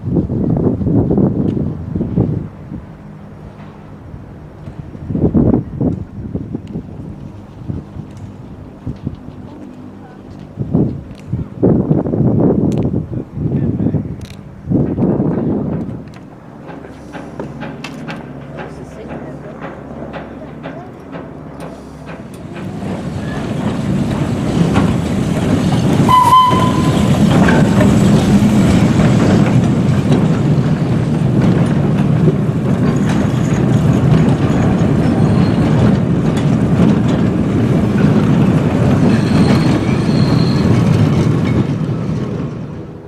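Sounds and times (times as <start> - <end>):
goods wagons rumbling on track: 0.2 - 43.0
short shrill tone: 26.1 - 27.8.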